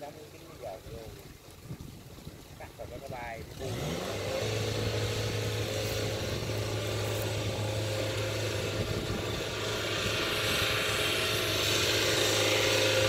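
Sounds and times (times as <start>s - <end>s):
tracked carrier engine running: 3.1s - 13.0s.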